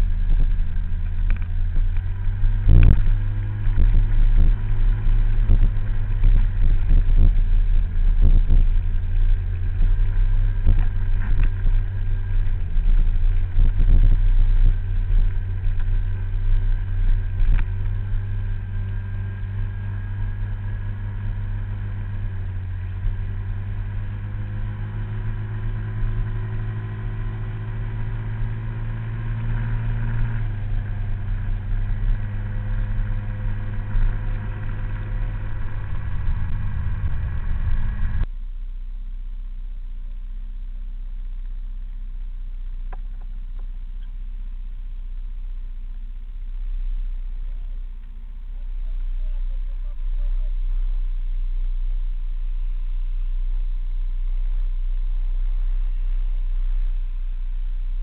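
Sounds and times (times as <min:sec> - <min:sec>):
scooter engine running: 0:00.0 - 0:38.3
knocks and rattles from rough road: 0:00.0 - 0:38.4, 0:42.6 - 0:44.1.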